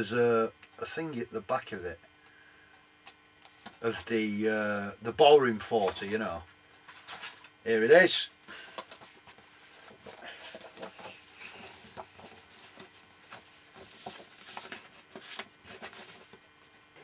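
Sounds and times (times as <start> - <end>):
paper pages rustling: 8.8 - 16.5.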